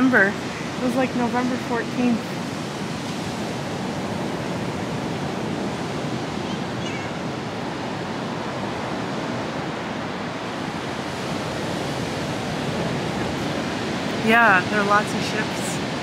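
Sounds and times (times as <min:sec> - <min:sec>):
ocean surf breaking: 0:00.0 - 0:16.0
wind: 0:00.0 - 0:16.0.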